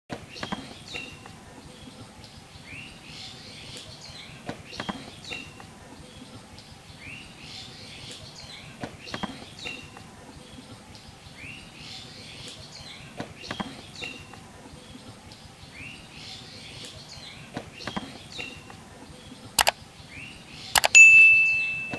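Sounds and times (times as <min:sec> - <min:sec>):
birds chirping: 0:00.1 - 0:21.9
sharp clicks: 0:20.8 - 0:21.0.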